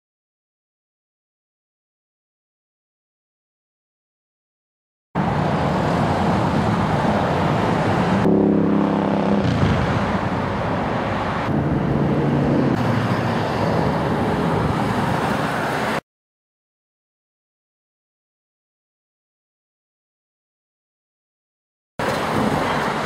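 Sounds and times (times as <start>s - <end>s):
road traffic: 5.2s - 16.0s, 22.0s - 23.0s
vehicle engine note: 8.2s - 10.6s.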